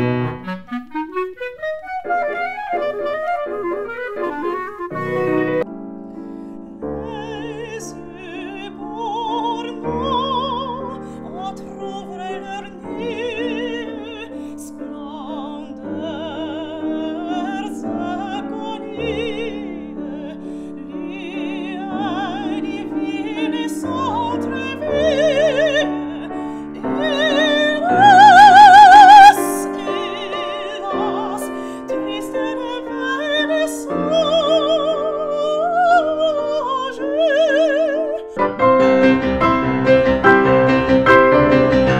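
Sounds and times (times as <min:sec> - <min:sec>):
grand piano: 0:00.0 - 0:41.9
woman singing operatically: 0:06.7 - 0:38.5.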